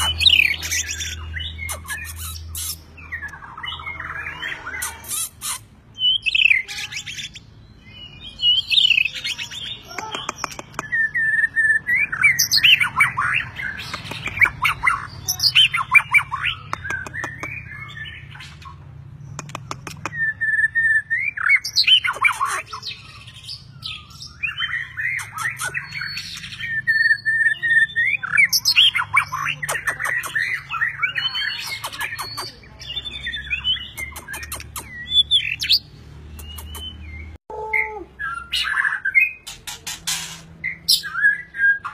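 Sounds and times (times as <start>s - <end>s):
songbird whistling: 19.6s - 29.4s, 36.4s - 39.4s.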